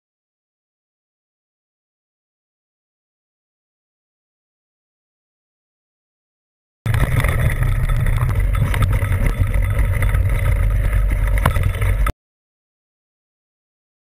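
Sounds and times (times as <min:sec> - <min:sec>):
bike rattling over rocky trail: 0:06.9 - 0:12.1
wind rumbling on microphone: 0:06.9 - 0:12.1.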